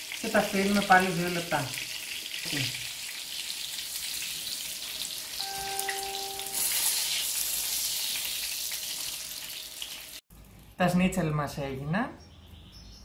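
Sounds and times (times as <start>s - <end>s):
schnitzel sizzling in frying oil: 0.0s - 10.7s
steady electronic tone: 5.4s - 6.8s.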